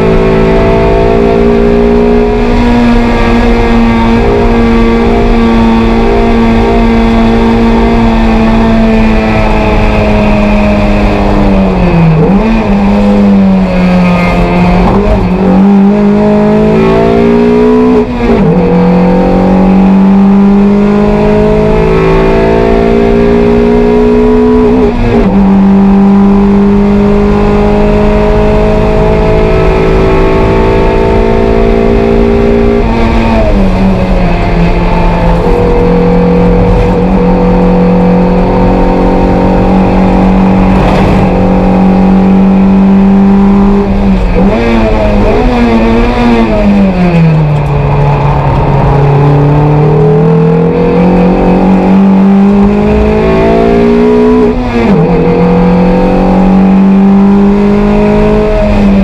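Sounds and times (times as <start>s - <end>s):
race car engine revving: 0.0s - 59.0s.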